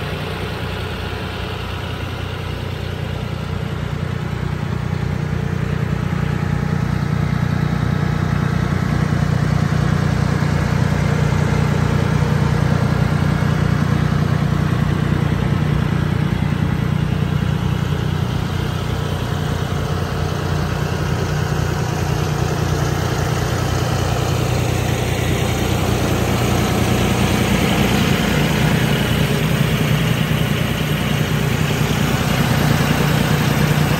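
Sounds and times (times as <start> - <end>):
tractor diesel engine idling: 0.0 - 33.9.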